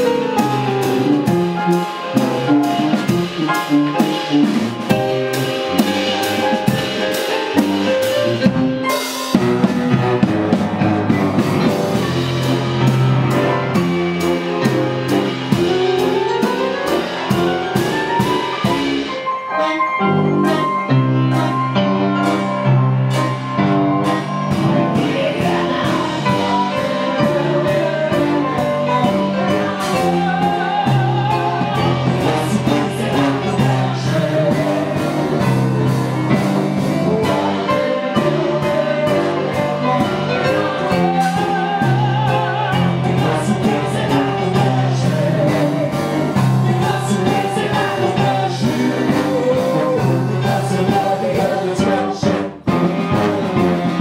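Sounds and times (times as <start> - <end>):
drum kit: 0.0 - 54.0
woman singing: 24.9 - 35.0.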